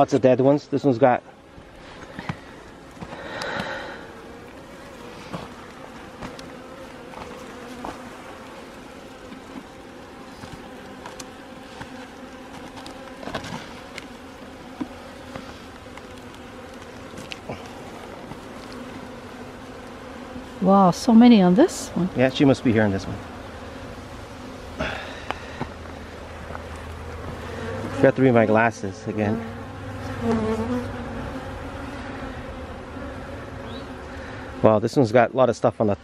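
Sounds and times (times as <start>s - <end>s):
honeybees buzzing: 0.0s - 36.0s
faint clicks: 3.3s - 3.7s.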